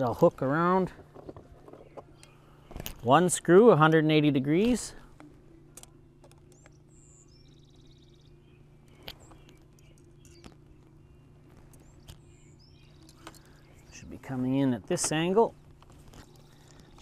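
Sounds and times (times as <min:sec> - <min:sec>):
low steady hum: 0:00.0 - 0:17.0
bird chirping: 0:06.3 - 0:15.3, 0:16.1 - 0:17.0.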